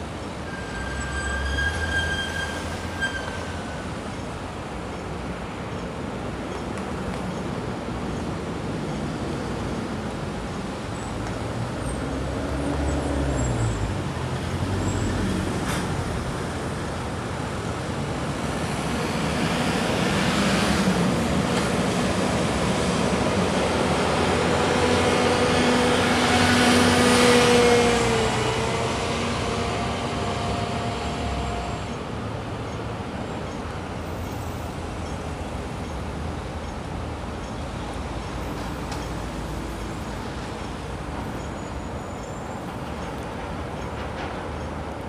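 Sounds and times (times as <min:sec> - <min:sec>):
road traffic passing: 0:00.0 - 0:45.0.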